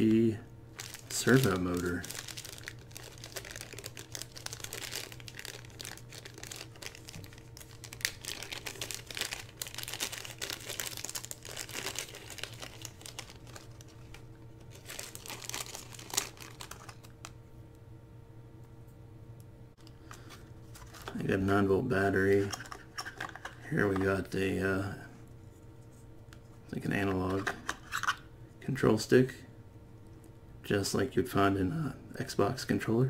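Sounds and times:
plastic bag crinkling: 0.7s - 17.3s.

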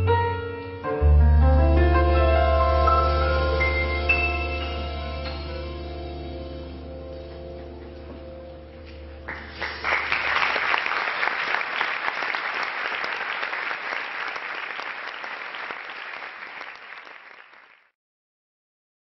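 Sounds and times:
jazz piano trio chord: 0.0s - 9.2s
audience applauding: 9.2s - 17.9s.

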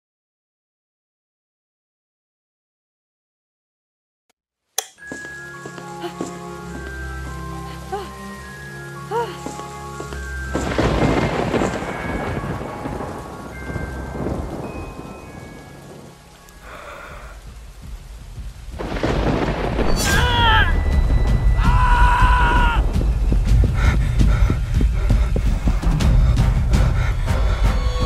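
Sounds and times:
rain: 5.4s - 28.0s
thunder rumbling: 10.4s - 28.0s
high voice crying out: 20.0s - 20.8s, 21.6s - 22.8s.

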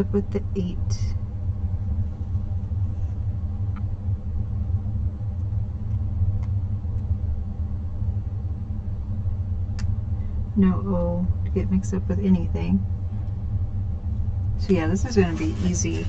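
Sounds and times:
heating system rumbling: 0.0s - 16.0s.

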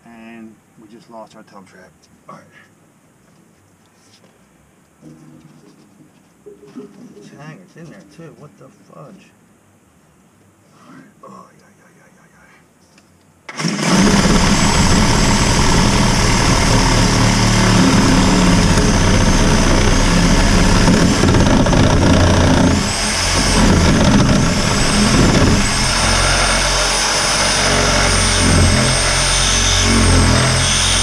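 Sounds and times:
motor running with whine: 13.5s - 31.0s.

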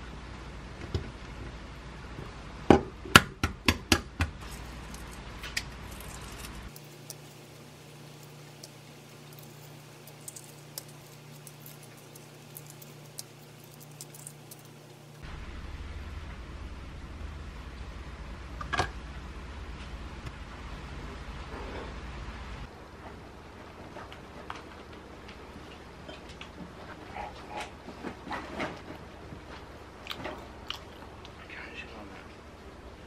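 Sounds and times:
eggshell crackling while peeled: 4.4s - 15.2s
even hiss: 4.4s - 16.2s
low rumble: 15.2s - 22.7s.

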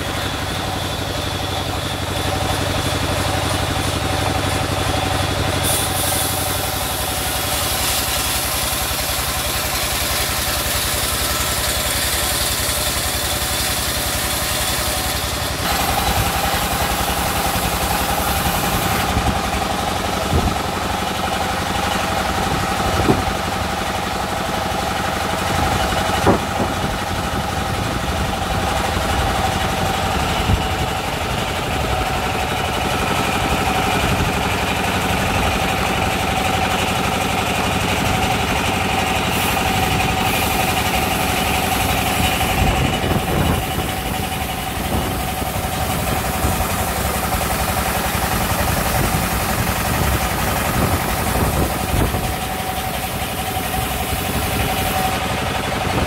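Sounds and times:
band saw cutting log: 0.0s - 56.0s
engine running: 0.0s - 56.0s.

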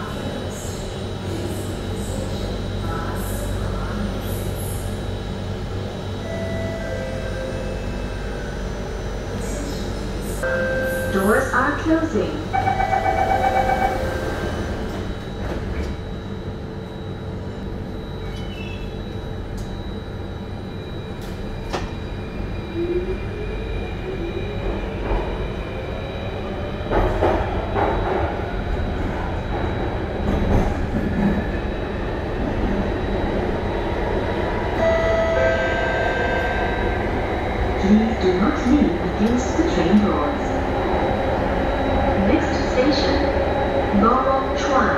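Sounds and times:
train wheels rumbling on track: 24.0s - 44.9s.

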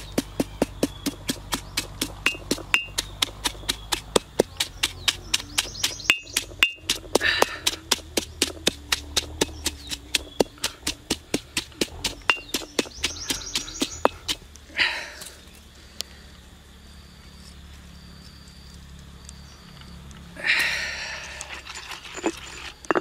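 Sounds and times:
stone pestle pounding in mortar: 0.0s - 14.4s.

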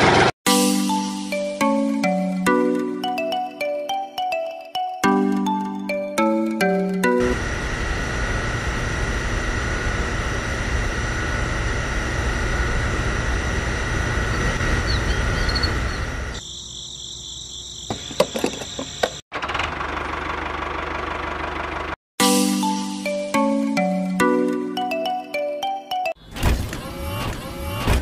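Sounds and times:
small electric motor humming: 7.2s - 16.4s, 26.6s - 28.0s.

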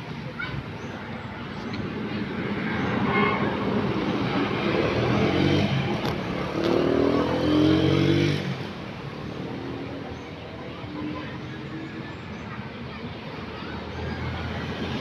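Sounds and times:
motorcycle engine passing: 4.0s - 8.7s.

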